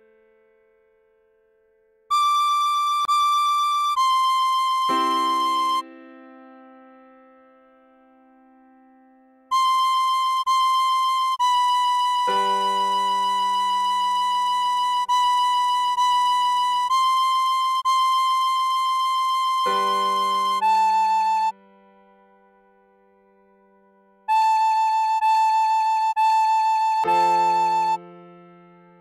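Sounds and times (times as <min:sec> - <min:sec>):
tin whistle slow melody: 0:02.1 - 0:05.9, 0:09.5 - 0:21.6, 0:24.3 - 0:28.1
sustained piano chords: 0:03.0 - 0:29.0.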